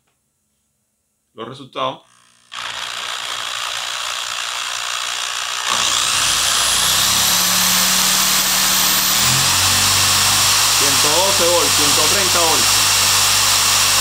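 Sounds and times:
small motor whirring: 2.1s - 14.0s
low hum: 5.8s - 13.2s
high whine rising in pitch: 5.9s - 14.0s.

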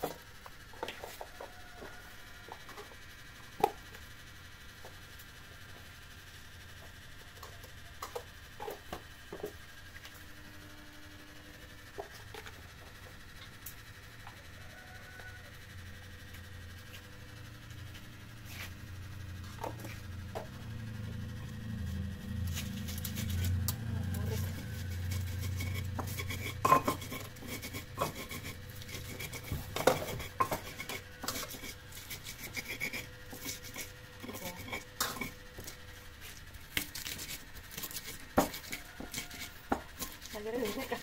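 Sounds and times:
low engine hum: 18.8s - 26.1s.

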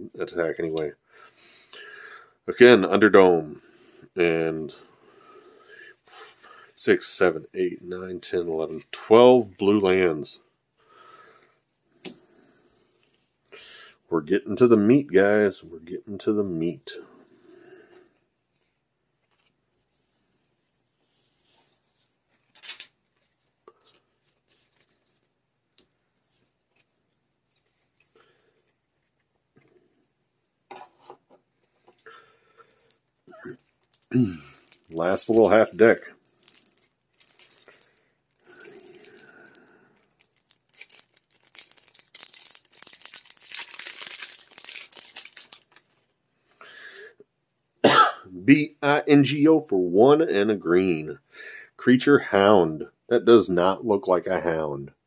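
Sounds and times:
cards rustling and tapping: 22.3s - 29.9s, 39.4s - 46.1s
plastic wrap crinkling: 32.6s - 46.2s.

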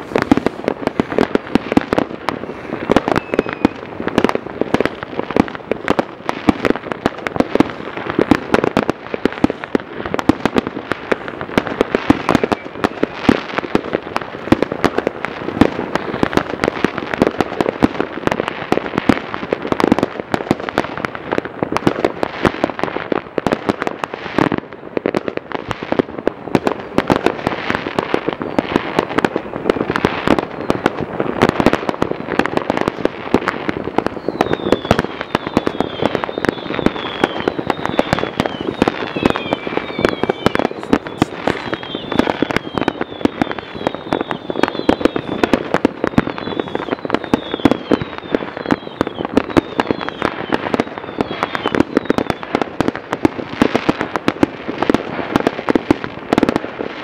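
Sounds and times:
firework whistles falling in pitch: 0.0s - 5.0s, 11.8s - 13.7s, 15.6s - 16.7s, 30.1s - 32.0s, 33.4s - 52.7s
fireworks popping and banging: 0.0s - 57.0s.

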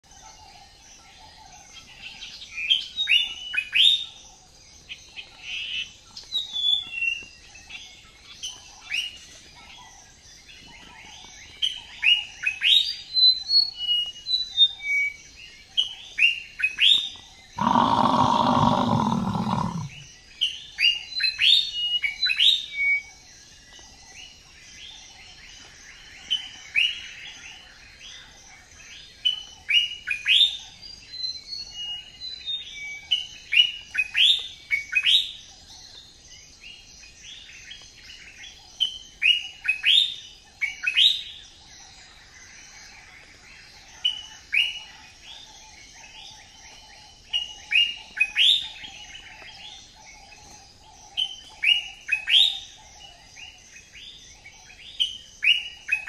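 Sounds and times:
birds chirping and whistling: 4.9s - 28.2s
loud low drawn-out bird call: 17.6s - 20.0s.

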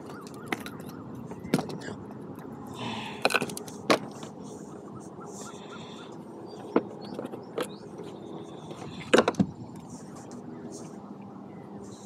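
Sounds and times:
handling knocks and clicks: 6.6s - 7.8s
wind buffeting microphone: 8.7s - 10.6s.

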